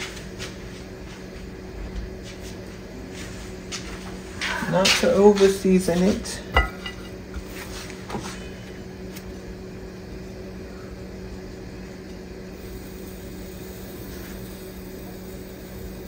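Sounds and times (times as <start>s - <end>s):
kitchen appliance humming: 4.2s - 16.0s.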